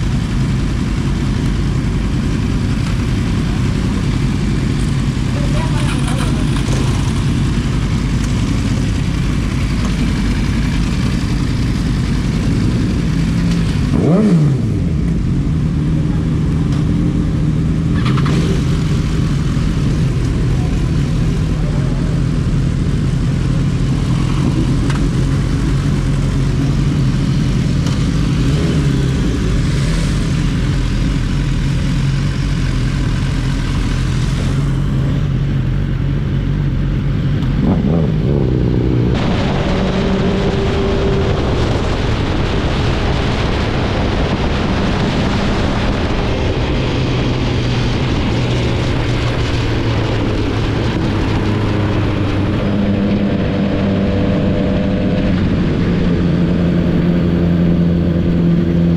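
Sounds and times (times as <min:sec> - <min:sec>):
motorcycle engine accelerating: 0:00.0 - 0:58.9
wind rushing over microphone: 0:33.2 - 0:58.9.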